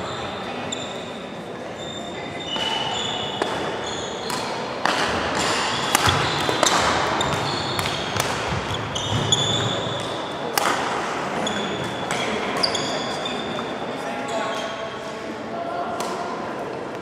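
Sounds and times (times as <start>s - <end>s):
shoes squeaking on wooden floor: 1.8s - 4.4s, 5.4s - 10.0s
racket hitting shuttlecock: 2.6s - 11.1s.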